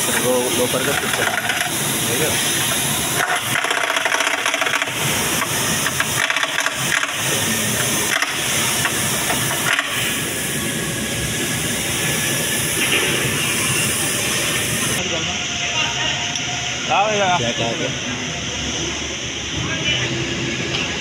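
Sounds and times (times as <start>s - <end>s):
pneumatic impact wrench rattling: 0.0s - 15.0s
steady air hiss: 0.0s - 21.0s.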